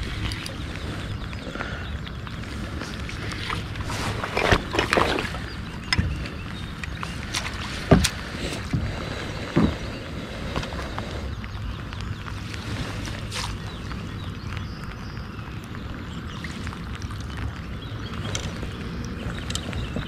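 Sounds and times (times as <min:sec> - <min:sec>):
steady low rumble: 0:00.0 - 0:20.0.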